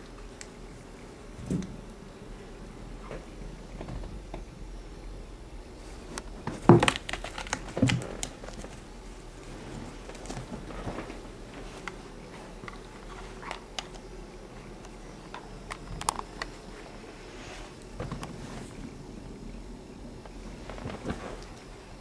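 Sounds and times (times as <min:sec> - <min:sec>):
light scratching rustles: 0:20.4 - 0:21.7.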